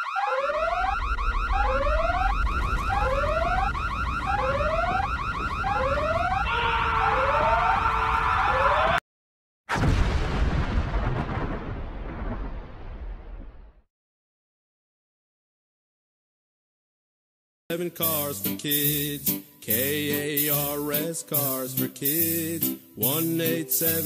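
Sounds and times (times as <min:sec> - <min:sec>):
alarm whooping: 0:00.0 - 0:09.0
low rumble: 0:01.0 - 0:06.4
loud explosion: 0:01.1 - 0:06.6, 0:09.7 - 0:13.9.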